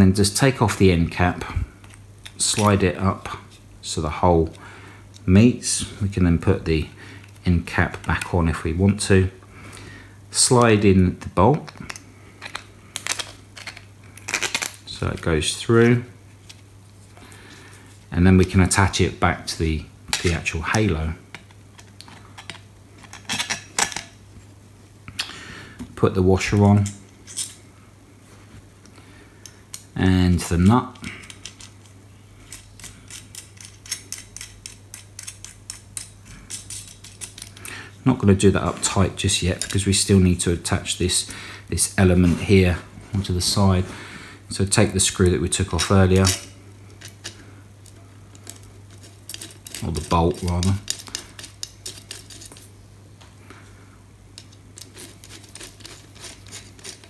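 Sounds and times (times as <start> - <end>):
steady low hum: 0.0 - 57.0
small metal parts clicking: 31.0 - 37.7, 44.7 - 52.7, 54.4 - 57.0.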